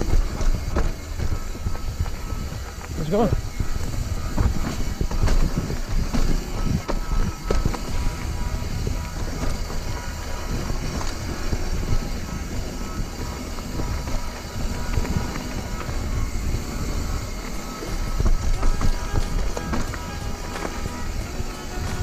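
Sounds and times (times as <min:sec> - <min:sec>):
bike rattling and clicking: 0:00.0 - 0:22.0
bike tyres rumbling on dirt: 0:00.0 - 0:22.0.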